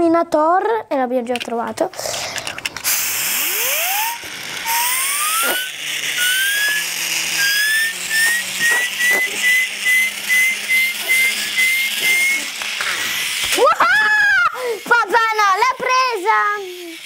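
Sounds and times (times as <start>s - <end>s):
toy turbo whistling: 2.4s - 17.0s
breath hiss: 12.8s - 13.2s.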